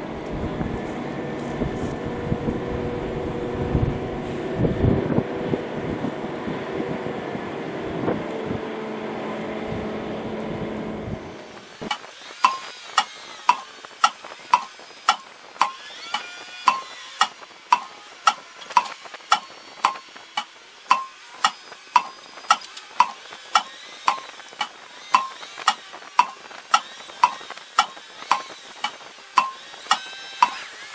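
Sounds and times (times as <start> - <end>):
low engine-like drone: 0.0 - 30.9
clock ticking: 13.5 - 30.6.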